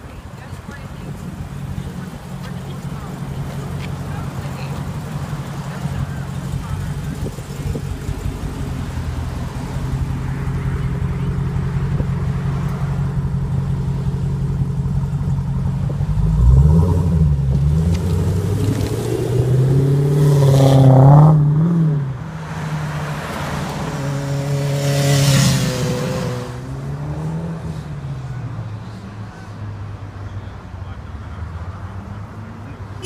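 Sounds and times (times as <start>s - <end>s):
car engine revving and upshifting: 15.8s - 29.1s.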